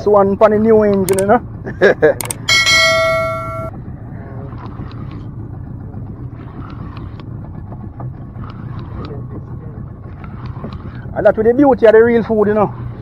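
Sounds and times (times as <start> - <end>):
outboard motor rumbling: 0.0 - 13.0
synthetic bell chime: 2.3 - 3.7
wind and water noise: 3.7 - 13.0.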